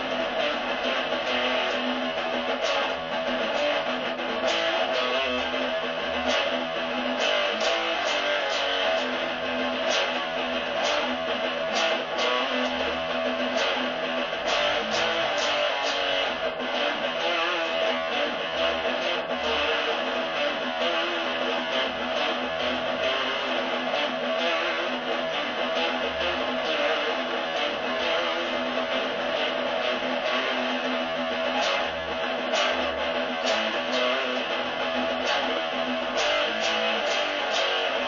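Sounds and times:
guitar strumming: 0.0 - 38.0.

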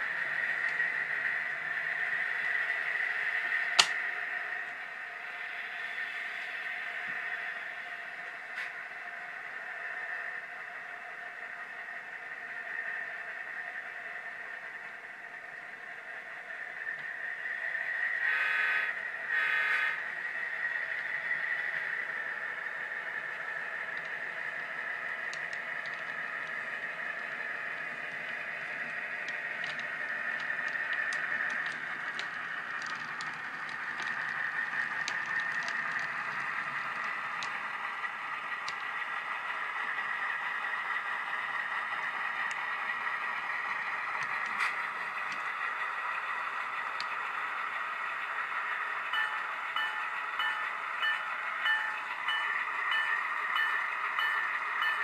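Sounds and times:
model train wheels clicking on rail joints: 0.0 - 10.7, 11.3 - 55.0
diesel engine sound: 0.0 - 55.0
bell ringing: 49.1 - 55.0.

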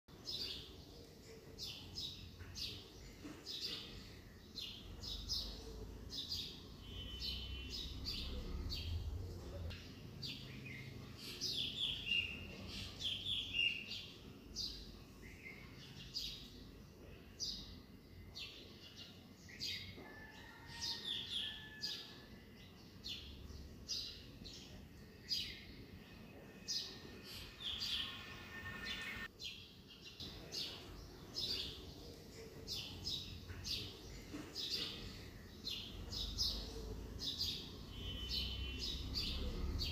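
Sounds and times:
birds chirping: 30.0 - 39.9.

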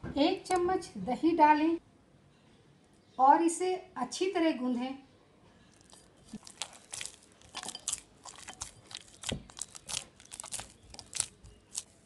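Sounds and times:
dough kneading wet sticky sounds: 5.7 - 12.0.

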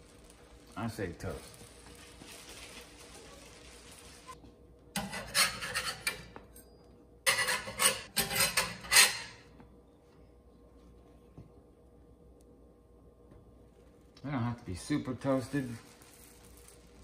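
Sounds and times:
spatula scraping metal griddle: 5.0 - 6.3, 7.3 - 9.4.

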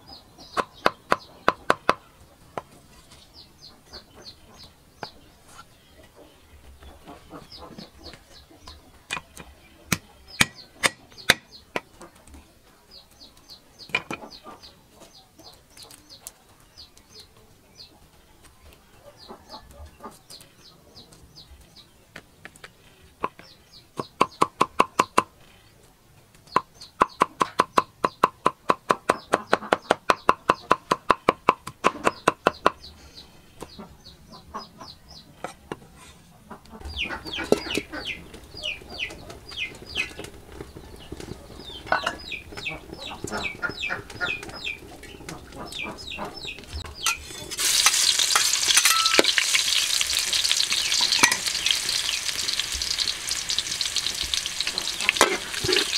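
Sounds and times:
garlic sizzling in hot oil: 47.0 - 55.9
spatula stirring in wok: 47.1 - 55.9.

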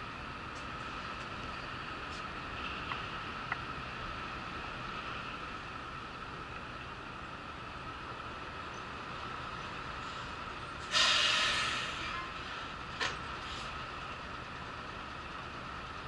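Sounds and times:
sudden loud hiss: 10.9 - 12.0.

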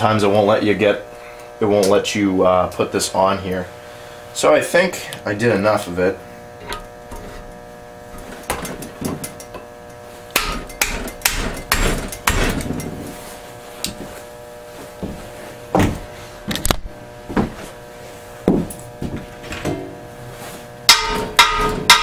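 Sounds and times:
hammer knocking on metal shaft: 10.3 - 12.8, 20.9 - 22.0.

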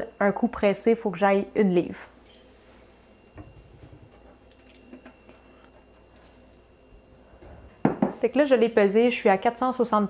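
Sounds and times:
liquid dripping and trickling: 4.3 - 5.6.

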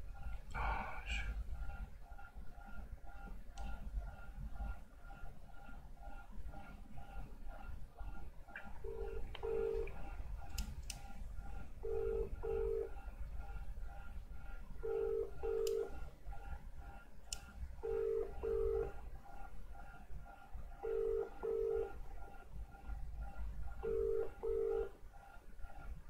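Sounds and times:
telephone ringback tone: 20.8 - 21.9, 23.9 - 24.9.

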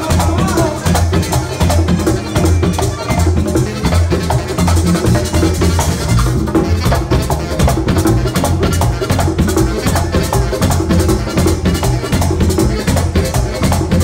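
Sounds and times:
alto saxophone: 0.0 - 14.0
congas: 0.0 - 14.0
electric bass guitar: 0.0 - 14.0.

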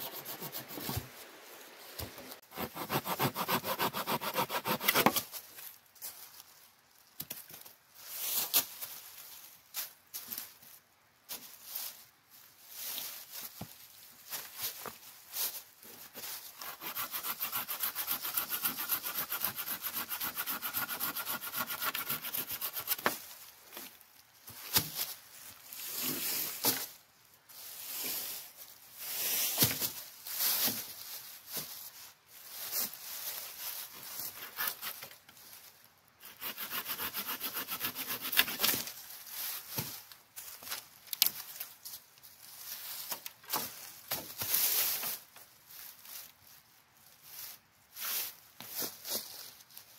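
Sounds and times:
hand saw cutting branch: 0.0 - 1.2, 2.4 - 5.3, 16.6 - 23.1, 34.3 - 35.1, 36.2 - 38.9
dry leaves rustling: 5.2 - 16.6, 23.1 - 36.0, 38.6 - 49.9.

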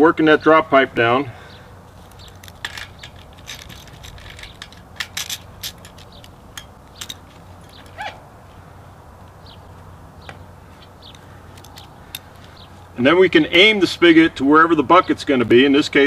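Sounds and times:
metal clicks and knocks: 2.0 - 8.0, 10.2 - 12.6.

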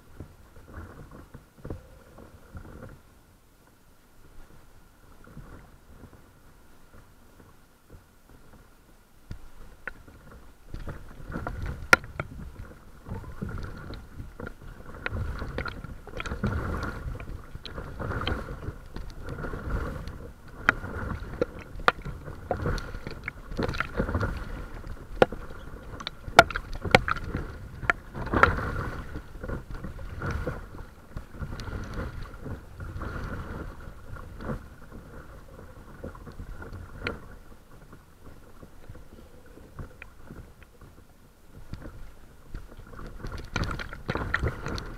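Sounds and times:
water lapping against boat: 4.2 - 44.9
sharp clicks and splashes: 9.3 - 44.9.

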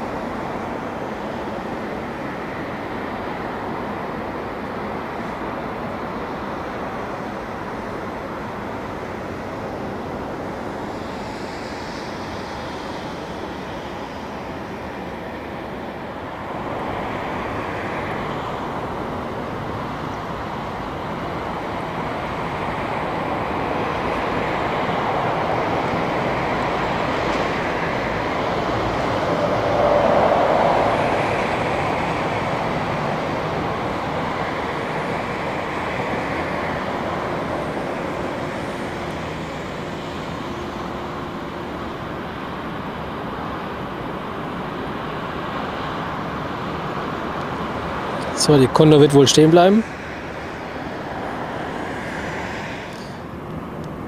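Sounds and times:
jet engines taxiing: 0.0 - 54.0.

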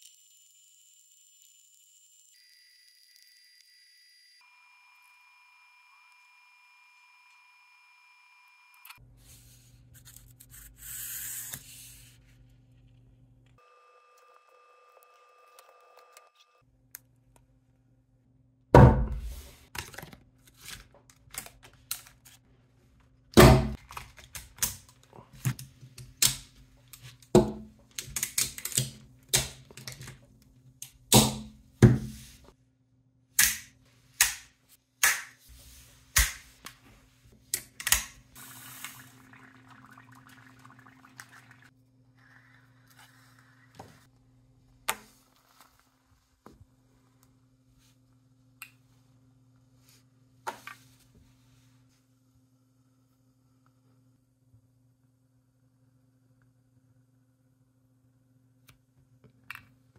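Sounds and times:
magnets snapping and clacking together: 27.9 - 30.2.

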